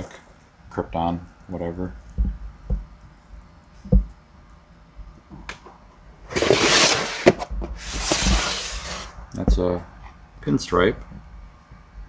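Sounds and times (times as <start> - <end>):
plastic tub scraping: 6.3 - 9.6.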